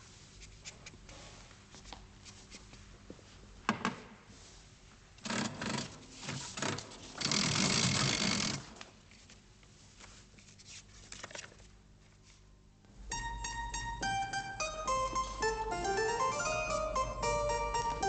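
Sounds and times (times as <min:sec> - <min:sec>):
plucked-string music: 0:13.0 - 0:18.0.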